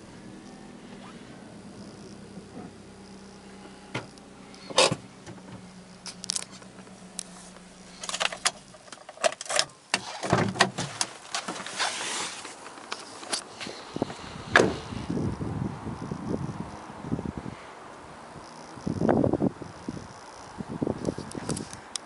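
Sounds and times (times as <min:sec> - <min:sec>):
car engine idling: 0:00.0 - 0:10.2
car door opening: 0:00.5 - 0:02.9, 0:03.5 - 0:06.8, 0:07.4 - 0:15.0
clicks and clunks: 0:03.9 - 0:06.9.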